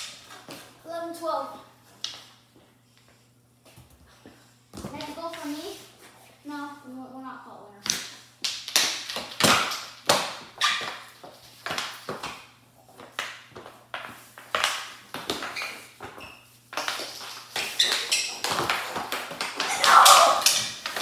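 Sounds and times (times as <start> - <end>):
sticks striking puck and floor: 7.8 - 21.0
hockey sticks clacking: 7.9 - 21.0.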